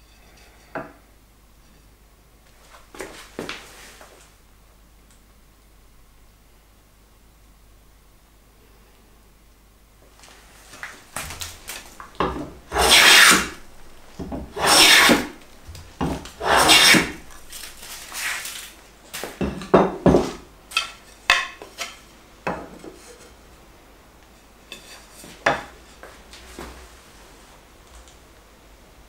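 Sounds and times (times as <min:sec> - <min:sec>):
hand plane rasping on wood: 0:12.7 - 0:13.6, 0:14.4 - 0:15.4, 0:16.1 - 0:17.3.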